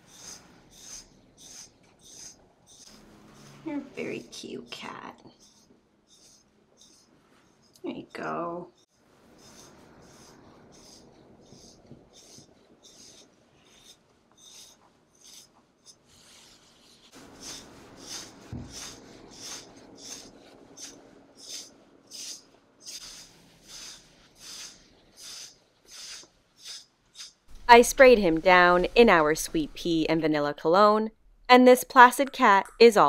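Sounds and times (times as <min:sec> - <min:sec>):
brush raking through cat fur: 0:00.0 - 0:04.5, 0:09.2 - 0:29.2.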